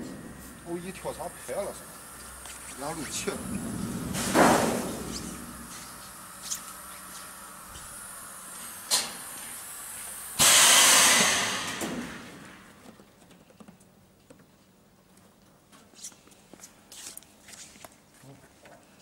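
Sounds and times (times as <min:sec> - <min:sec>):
low steady hum: 0:00.0 - 0:10.4
air hissing through vacuum press: 0:01.6 - 0:06.4, 0:08.9 - 0:12.6.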